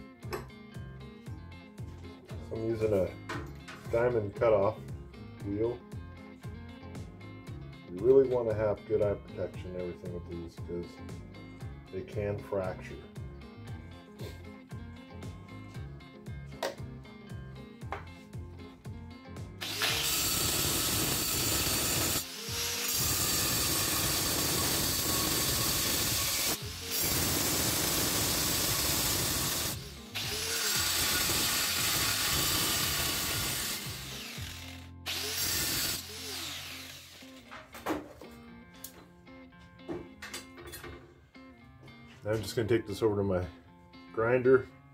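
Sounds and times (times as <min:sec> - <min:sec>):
angle grinder cutting steel: 0:19.6 - 0:37.5.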